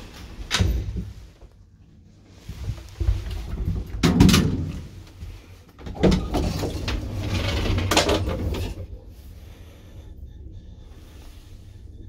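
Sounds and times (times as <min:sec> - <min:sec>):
low steady hum: 0:00.0 - 0:12.0
elevator door rattling and banging shut: 0:03.8 - 0:05.0.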